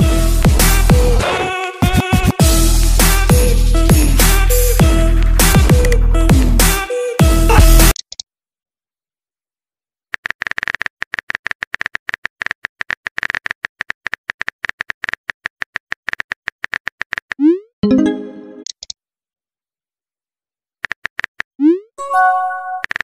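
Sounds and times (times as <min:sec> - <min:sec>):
electronic music: 0:01.9 - 0:08.0, 0:17.8 - 0:18.7, 0:22.0 - 0:22.9.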